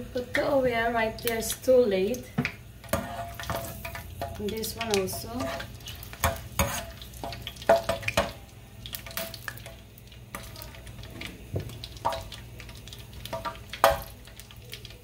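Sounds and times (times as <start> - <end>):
oil sizzling: 0.0 - 15.0
metal spoon scraping frying pan: 2.8 - 8.1.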